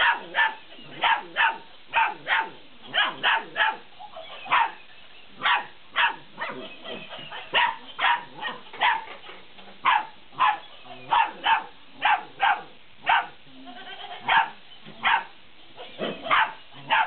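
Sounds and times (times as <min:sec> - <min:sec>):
puppies yapping: 0:00.0 - 0:04.8, 0:05.4 - 0:13.3, 0:14.2 - 0:17.0.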